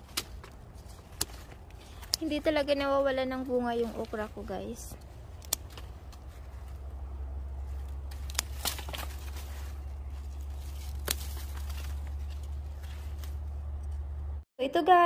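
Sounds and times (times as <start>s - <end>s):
low rumble: 3.9s - 14.4s
scissors snipping: 5.4s - 6.3s.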